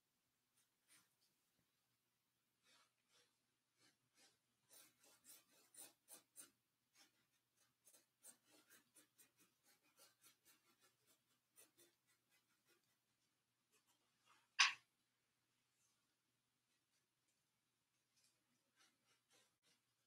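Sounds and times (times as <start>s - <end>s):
paintbrush dabbing on canvas: 2.6s - 14.9s.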